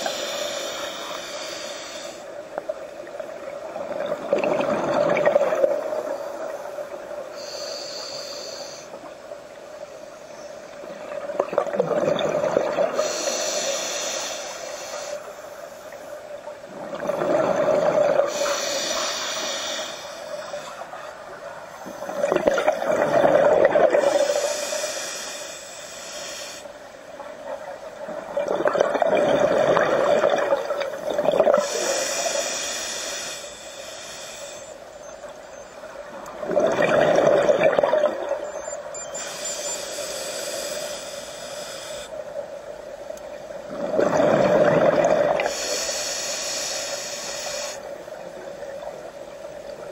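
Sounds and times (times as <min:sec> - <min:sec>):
regulator hiss on inhale: 0:00.0 - 0:02.6, 0:05.8 - 0:10.8, 0:12.7 - 0:16.5, 0:18.1 - 0:22.9, 0:23.9 - 0:26.9, 0:30.9 - 0:35.8, 0:38.8 - 0:42.5, 0:45.3 - 0:48.4.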